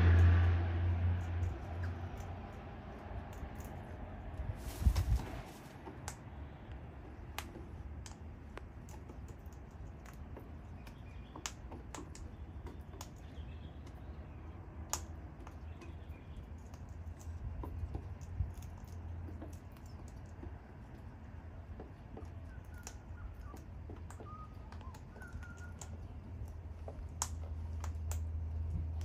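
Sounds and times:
beaks pecking and cracking seeds: 0.0s - 4.6s, 5.5s - 29.0s
steady low rumble: 0.0s - 8.9s, 25.8s - 29.0s.

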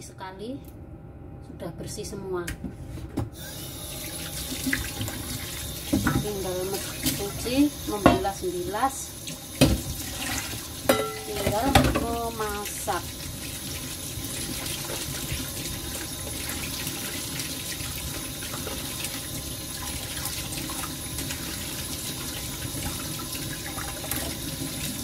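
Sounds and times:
tap water running into steel bowl: 3.9s - 25.0s.

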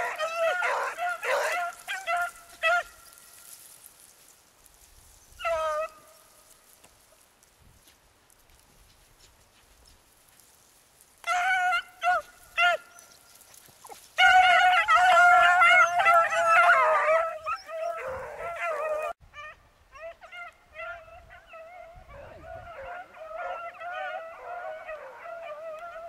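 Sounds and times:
beagles baying: 0.0s - 3.6s, 5.3s - 6.3s, 11.2s - 26.0s.

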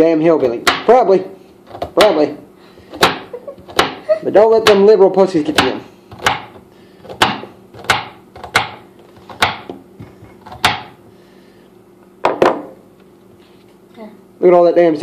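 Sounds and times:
knife chopping on cutting board: 0.4s - 1.0s, 2.8s - 4.0s, 4.6s - 4.9s, 5.5s - 11.0s.

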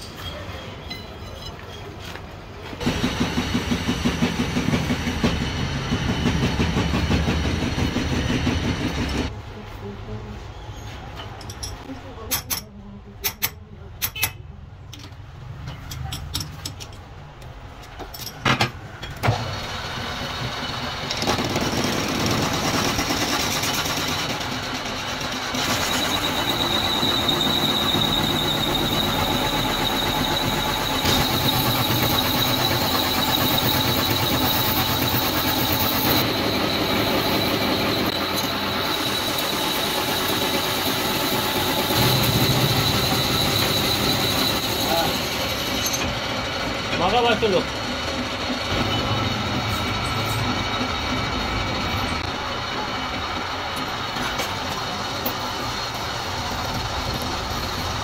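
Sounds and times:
lathe running: 19.3s - 58.0s
high whine of cutting tool: 25.7s - 46.1s.

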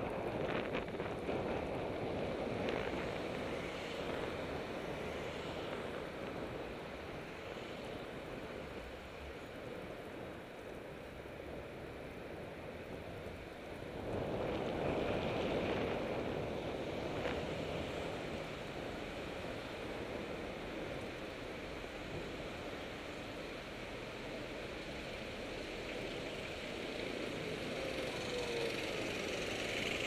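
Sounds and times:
wind on microphone: 0.0s - 8.7s, 13.8s - 21.0s
street traffic: 0.0s - 30.0s.

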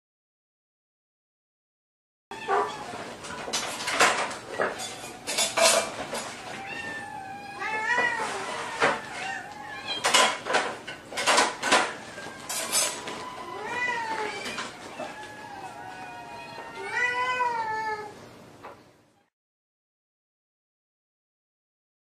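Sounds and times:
kittens mewing: 2.3s - 3.1s, 6.2s - 10.4s, 11.3s - 18.2s.

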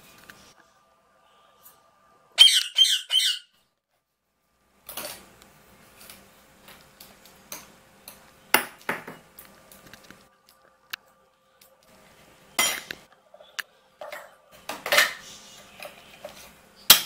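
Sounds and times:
parakeet squawking: 2.4s - 3.6s.

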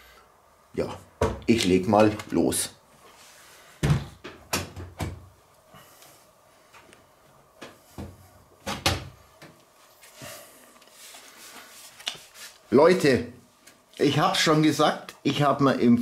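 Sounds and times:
computer case knocks and clunks: 3.8s - 5.3s.

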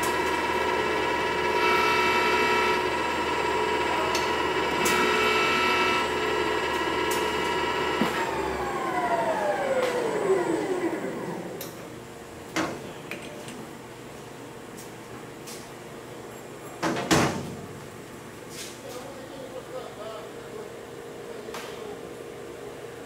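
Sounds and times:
lathe whining and coasting down: 0.0s - 11.8s.

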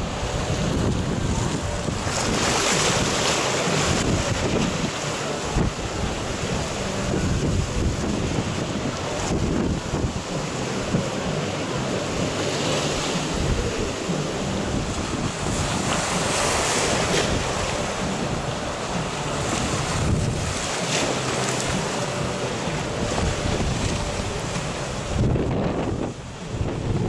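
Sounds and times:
surf breaking: 0.0s - 27.0s
wind blowing on microphone: 0.0s - 27.0s.

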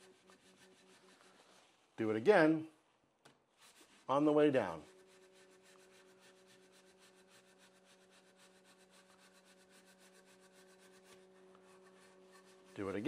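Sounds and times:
paper towel rubbing on screw: 0.0s - 1.9s, 3.5s - 13.0s.

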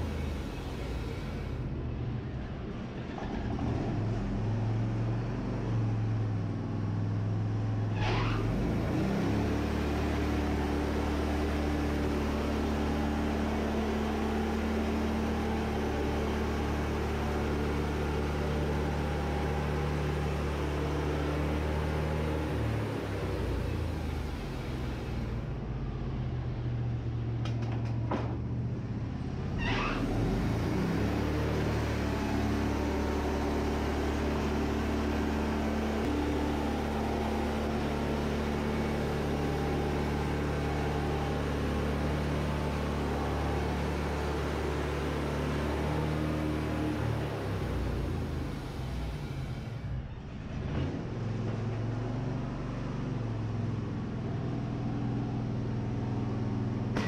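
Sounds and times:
sawmill engine running: 30.2s - 50.0s.

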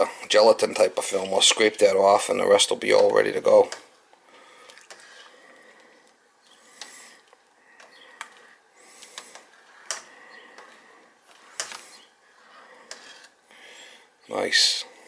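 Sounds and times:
metal spoon scraping a pot: 12.4s - 13.4s.

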